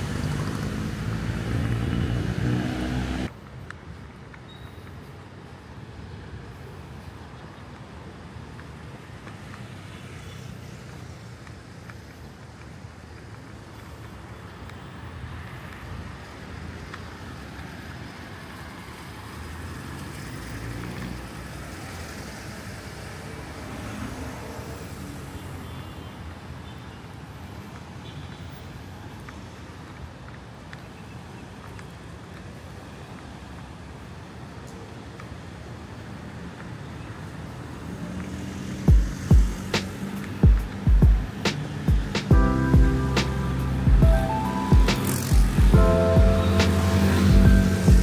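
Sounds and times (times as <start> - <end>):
street traffic rumble: 0.0 - 48.0.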